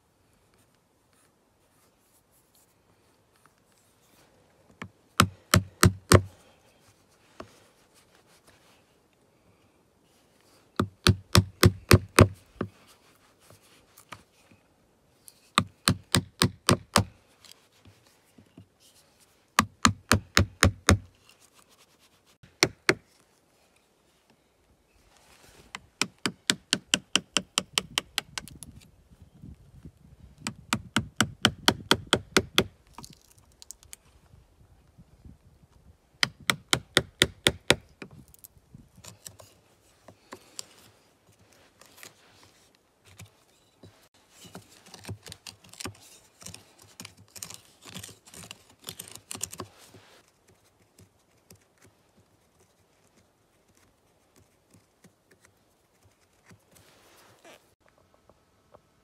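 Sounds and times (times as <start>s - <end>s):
hammer striking wood chisel: 5.2s - 6.3s, 10.8s - 12.3s, 15.6s - 17.1s, 26.0s - 28.3s.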